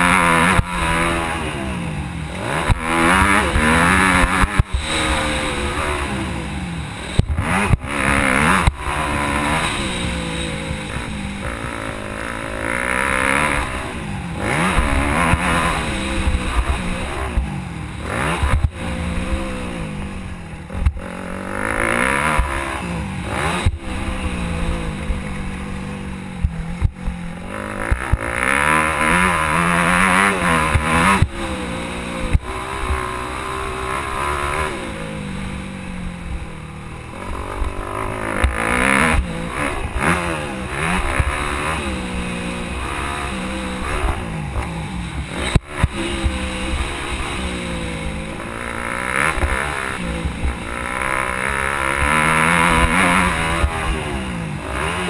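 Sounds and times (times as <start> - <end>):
motocross engine revving: 0.0 - 55.0.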